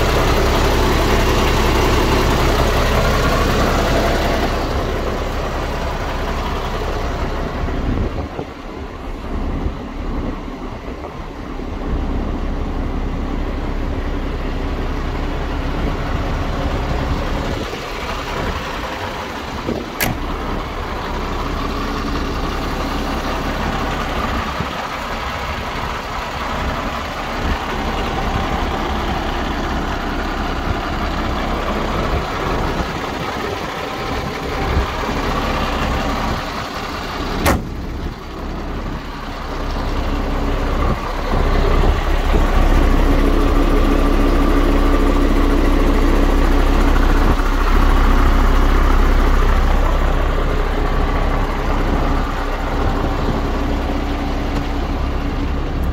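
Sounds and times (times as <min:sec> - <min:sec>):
diesel truck engine idling: 0:00.0 - 0:55.9
sharp click: 0:20.0 - 0:20.2, 0:37.4 - 0:37.8.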